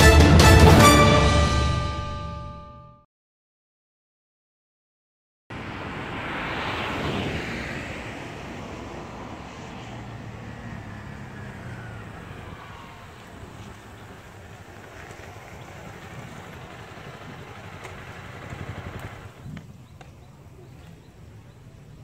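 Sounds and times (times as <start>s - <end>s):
vehicle passing: 5.5s - 22.0s
motorcycle engine hum: 5.6s - 22.0s.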